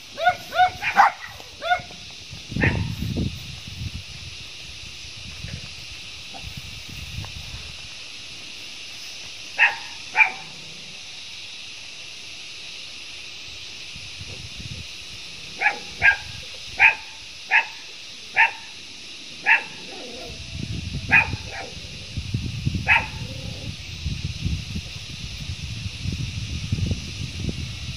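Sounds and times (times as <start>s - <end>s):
steady high hiss: 0.0s - 27.9s
dog barking: 0.2s - 1.9s, 2.6s - 2.9s, 9.6s - 10.6s, 15.6s - 18.7s, 19.4s - 20.2s, 21.1s - 21.8s, 22.8s - 23.3s.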